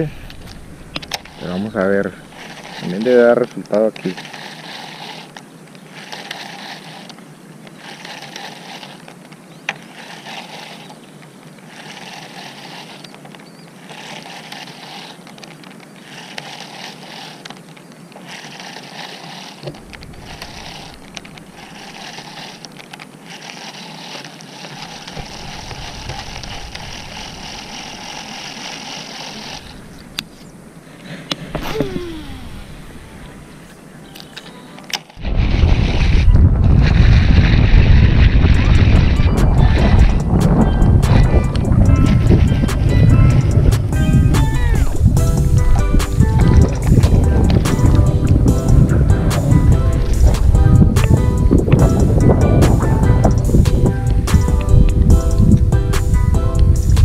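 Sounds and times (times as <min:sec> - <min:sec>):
fishing reel whirring: 0:00.0 - 0:30.6, 0:31.6 - 0:57.0
wind rumble on microphone: 0:35.2 - 0:57.0.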